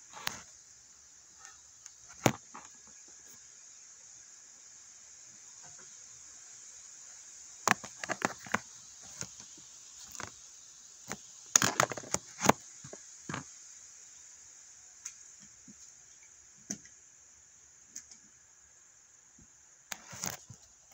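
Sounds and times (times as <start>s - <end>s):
steady high-pitched hiss: 0.0s - 20.9s
sharp cracks and snaps: 1.4s - 2.9s, 7.6s - 13.5s, 19.8s - 20.9s.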